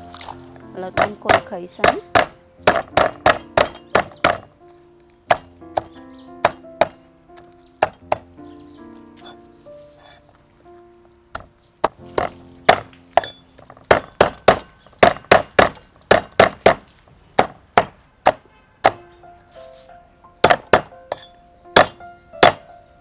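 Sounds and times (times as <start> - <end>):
cleaver chopping on wooden block: 0.9 - 4.5, 5.3 - 8.3, 11.3 - 19.0, 20.4 - 22.6.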